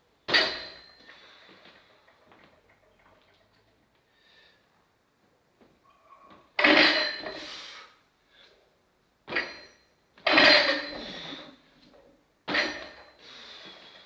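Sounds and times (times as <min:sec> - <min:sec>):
barbell hitting the floor: 0:00.3 - 0:00.9, 0:06.6 - 0:07.5, 0:09.3 - 0:11.3, 0:12.5 - 0:13.1
steel bar ringing: 0:06.6 - 0:07.5.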